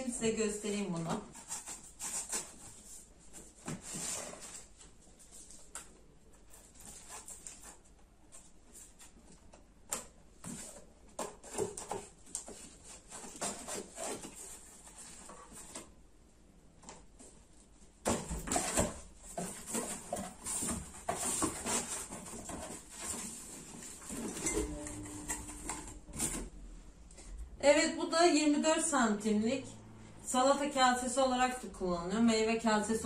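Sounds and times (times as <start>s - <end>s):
cardboard flaps rustling and knocking: 18.0s - 24.6s.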